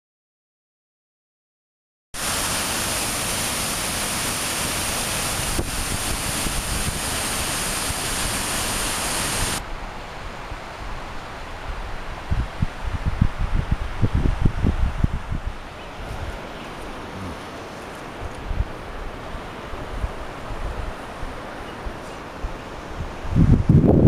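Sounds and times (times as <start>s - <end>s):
waterfall rushing: 2.2s - 12.2s, 15.6s - 23.0s.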